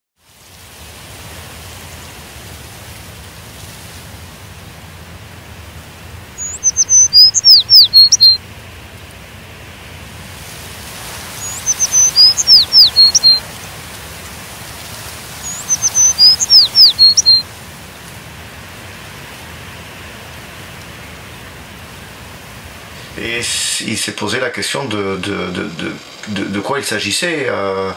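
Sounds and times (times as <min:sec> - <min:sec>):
background hiss: 0:00.2 - 0:27.9
songbird singing: 0:06.4 - 0:08.4, 0:11.4 - 0:13.5, 0:15.4 - 0:17.5.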